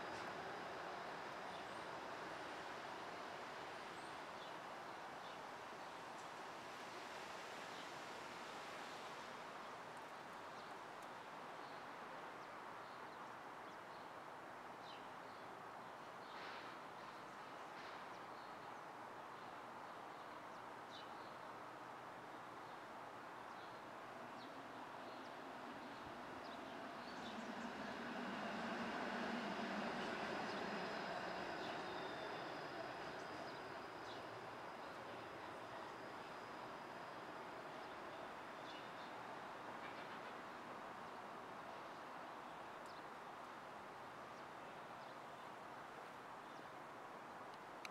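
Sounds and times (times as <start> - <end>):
streetcar rumble: 0.0 - 5.0, 23.9 - 42.2
distant traffic: 0.0 - 12.1, 22.2 - 44.5
city street traffic: 24.6 - 41.7.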